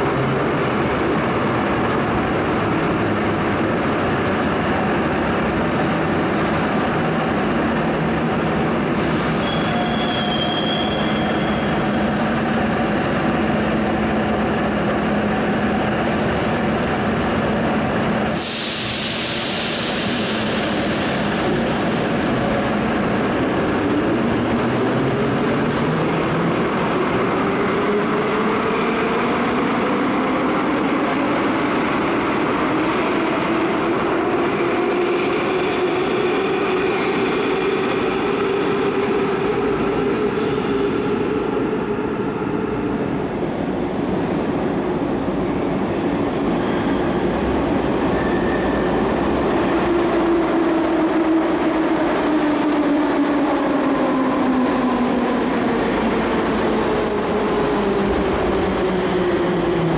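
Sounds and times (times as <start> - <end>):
metro train rumble and hum: 0.0 - 59.9
high squeal: 9.0 - 11.9, 46.2 - 49.1, 57.0 - 59.8
loud hiss: 18.3 - 21.6.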